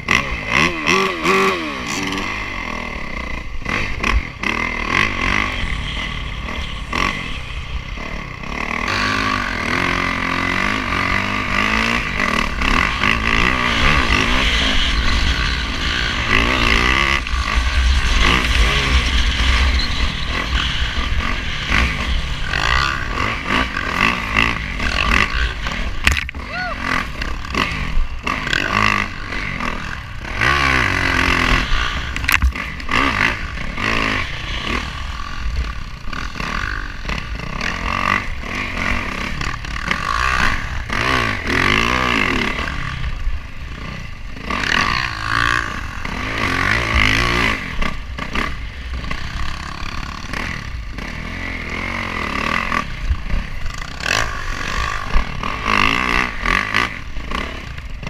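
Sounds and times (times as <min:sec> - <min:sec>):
motorcycle engine revving: 0:00.0 - 0:58.0
wind buffeting camera: 0:11.8 - 0:26.4.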